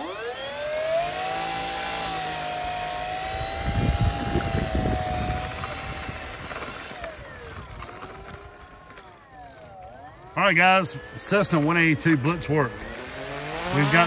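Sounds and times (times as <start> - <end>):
model plane electric motor whine: 0.0 - 14.0
wind rumble on microphone: 3.3 - 6.7.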